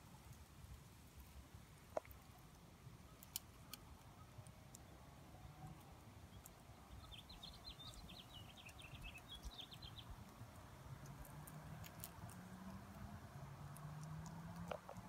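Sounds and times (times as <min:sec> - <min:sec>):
small bird chirping: 0:03.0 - 0:15.0.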